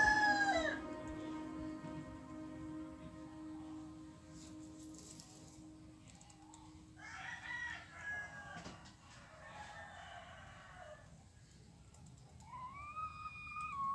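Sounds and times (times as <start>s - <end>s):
faint rooster crowing: 0.0s - 1.0s, 6.3s - 11.3s.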